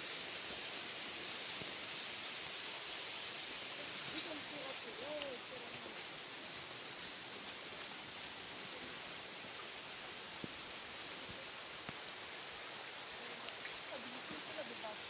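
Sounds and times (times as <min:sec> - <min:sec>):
steady rain falling: 0:00.0 - 0:15.0.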